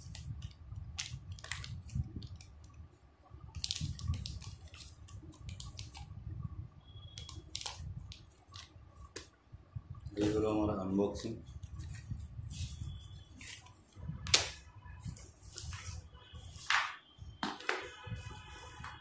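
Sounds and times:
plastic sleeve crinkling: 0.0 - 2.5.

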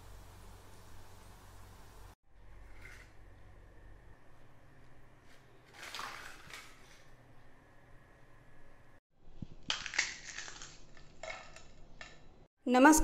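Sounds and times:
crisp shells crunching in hand: 9.6 - 11.0.

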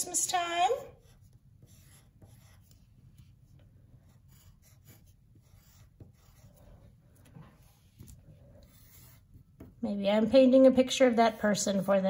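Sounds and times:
pencil scratching on paper: 0.9 - 9.8.

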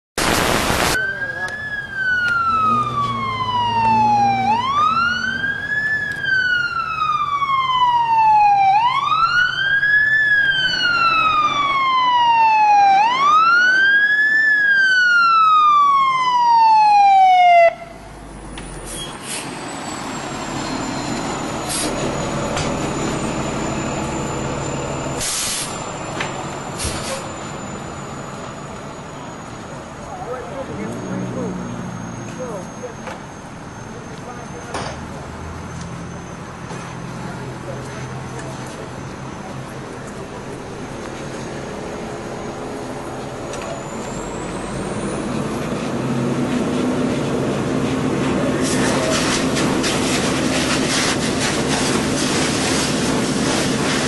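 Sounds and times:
emergency siren wailing: 0.4 - 18.6, 19.7 - 34.7.

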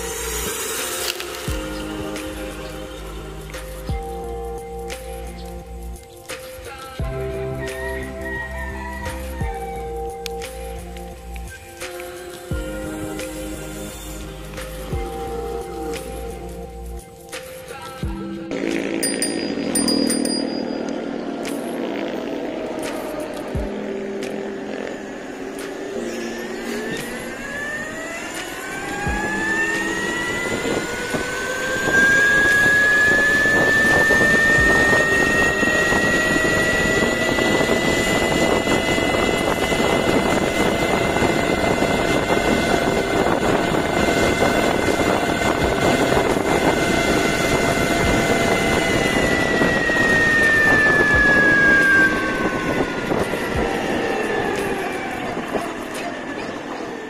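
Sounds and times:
electric motor whining: 0.0 - 4.3, 8.2 - 17.5, 18.5 - 56.9
wind rushing over microphone: 20.9 - 57.0.

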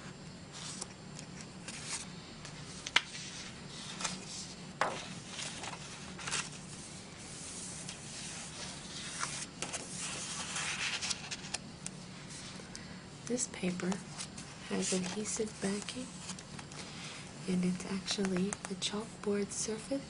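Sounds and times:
paper rustling and sliding: 0.5 - 11.6, 13.9 - 17.2.

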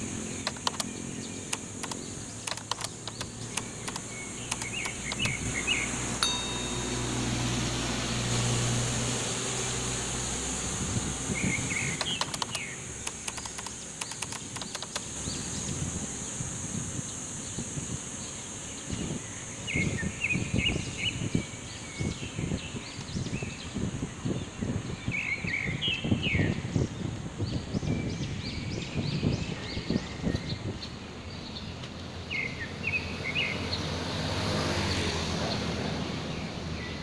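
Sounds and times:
small birds chirping: 0.0 - 7.0, 11.3 - 33.9
vehicle engine humming: 0.0 - 18.7.

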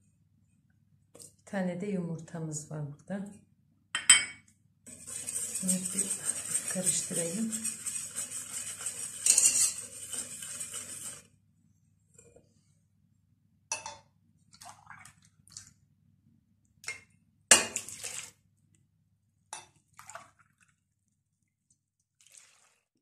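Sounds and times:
whisk scraping in metal pot: 4.9 - 11.3
milk pouring with wet splash: 14.5 - 15.8, 17.7 - 18.4, 19.9 - 20.9, 21.6 - 23.0.

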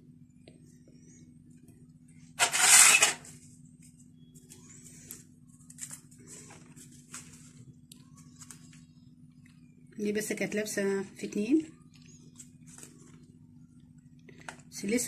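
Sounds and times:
steady low hum: 0.0 - 15.0
foil baking cups crinkling: 4.8 - 8.8.

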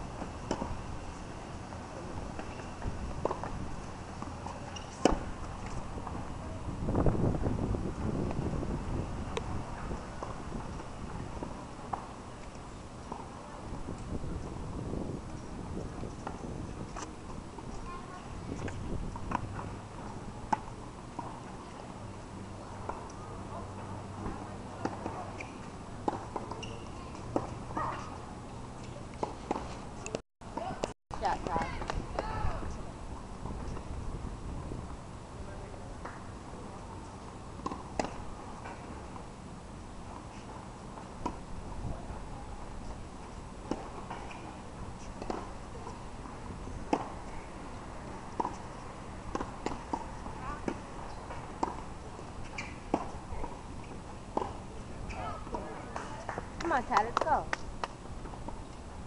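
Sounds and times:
tennis balls struck and bouncing: 0.2 - 0.8, 37.2 - 39.2, 43.6 - 47.4, 48.1 - 58.6.

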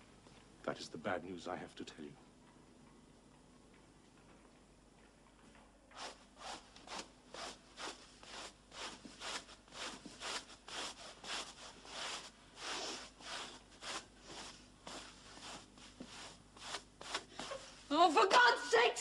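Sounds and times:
brush scrubbing a rug: 6.0 - 17.9.

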